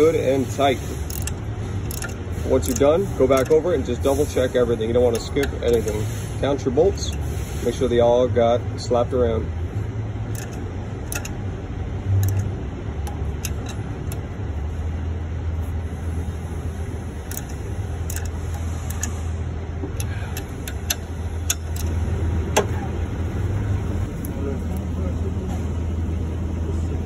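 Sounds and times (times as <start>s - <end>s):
ratchet wrench clicking: 0.0s - 7.9s, 10.2s - 11.5s, 12.1s - 14.6s, 15.9s - 22.7s.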